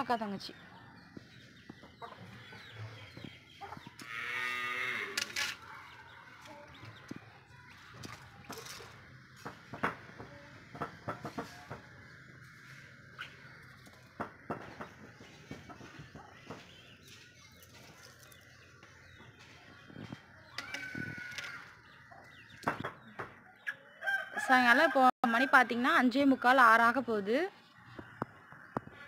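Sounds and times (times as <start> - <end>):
chickens clucking: 1.0 - 4.1, 8.3 - 24.2
beaks pecking on concrete: 10.7 - 19.4.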